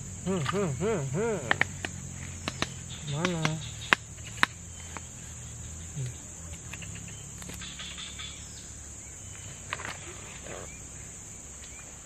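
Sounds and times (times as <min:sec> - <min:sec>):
high-pitched insect buzz: 0:00.0 - 0:12.0
sharp clicks: 0:01.4 - 0:05.1.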